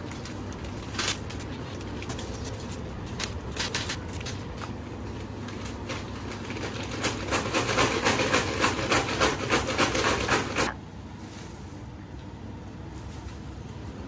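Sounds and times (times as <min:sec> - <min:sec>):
paper bag crinkling: 0:00.0 - 0:08.2
candies rattling in bag: 0:00.2 - 0:04.6.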